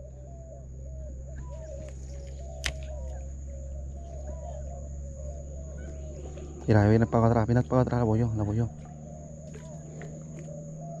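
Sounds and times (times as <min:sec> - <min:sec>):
birds chirping: 0:00.0 - 0:11.0
low steady hum: 0:00.0 - 0:11.0
steady high whine: 0:00.0 - 0:11.0
sharp click: 0:02.6 - 0:03.0.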